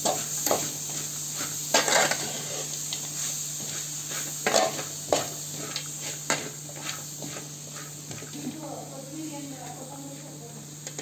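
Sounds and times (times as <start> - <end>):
greens sizzling in a pan: 0.0 - 11.0
spoon scraping metal pan: 1.7 - 2.7.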